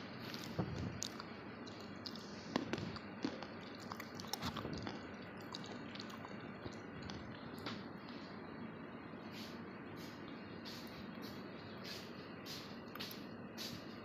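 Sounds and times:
crunchy chewing: 0:00.2 - 0:08.4.

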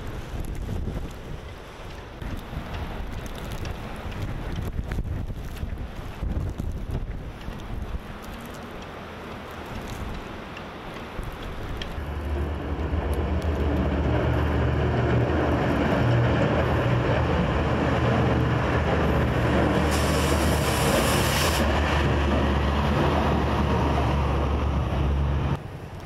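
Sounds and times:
diesel truck engine rumble: 0:10.2 - 0:26.0
brief hiss: 0:19.8 - 0:21.7.

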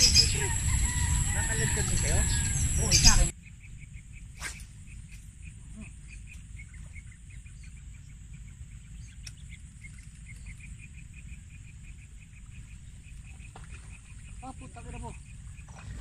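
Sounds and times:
high insect drone: 0:00.0 - 0:06.4
insects chirping: 0:00.0 - 0:16.0
low wind rumble: 0:00.0 - 0:16.0.

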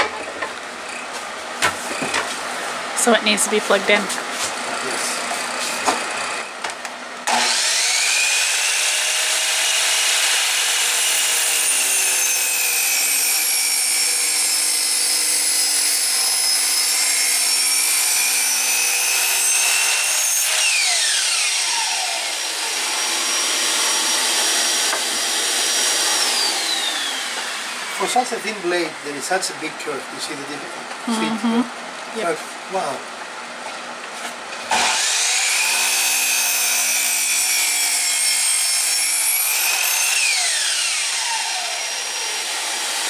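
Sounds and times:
vacuum running: 0:00.0 - 0:13.3, 0:13.9 - 0:31.6, 0:34.5 - 0:36.6
miter saw cutting wood: 0:00.0 - 0:29.5, 0:34.6 - 0:43.0.

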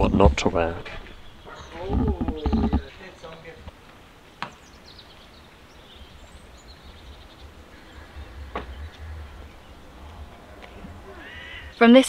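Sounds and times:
wind rumble on microphone: 0:00.0 - 0:02.9, 0:05.6 - 0:12.0
faint bird chirps: 0:04.4 - 0:11.9.

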